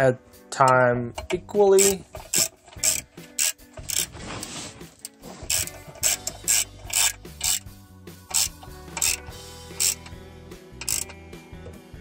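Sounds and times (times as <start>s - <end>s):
ratchet wrench clicking: 1.2s - 4.1s, 5.0s - 7.7s, 8.3s - 10.2s, 10.8s - 11.2s.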